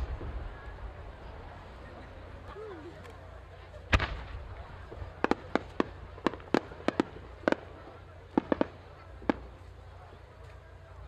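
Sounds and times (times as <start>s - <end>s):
fireworks bangs: 3.9s - 10.0s.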